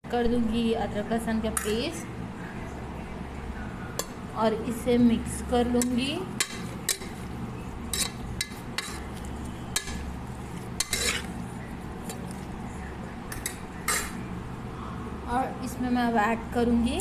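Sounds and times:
spoon scraping and knocking pot: 7.9 - 11.4.

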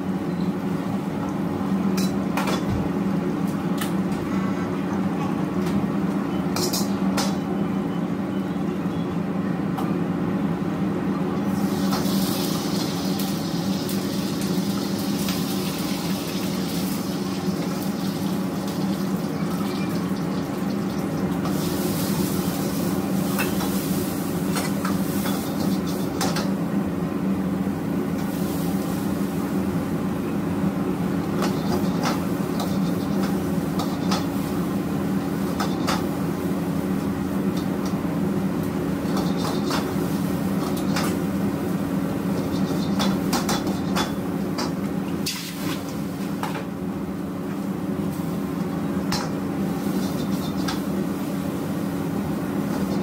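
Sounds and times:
burner and extraction hum: 0.0 - 53.0
food sizzling in a wok: 11.5 - 26.2, 28.2 - 29.6.

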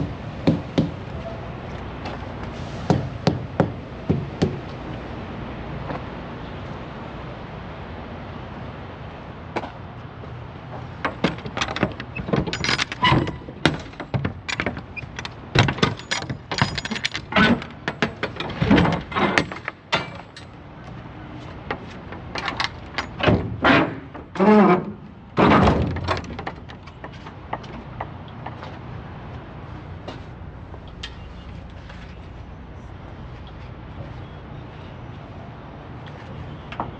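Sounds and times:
metal latches clanking and rattling: 11.0 - 20.6, 21.7 - 28.7.

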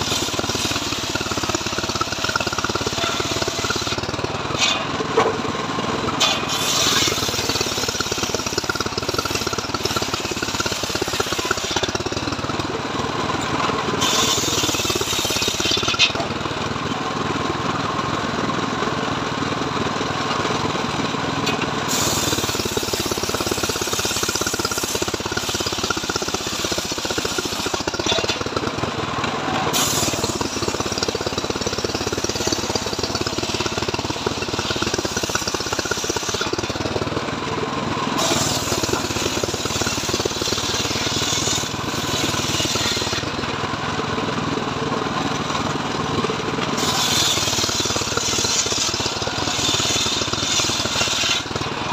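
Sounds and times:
saw blade cutting wood: 0.0 - 12.6, 13.8 - 16.4, 21.4 - 28.7, 29.5 - 37.0, 38.0 - 43.5, 46.2 - 51.9
engine droning: 0.0 - 51.9.

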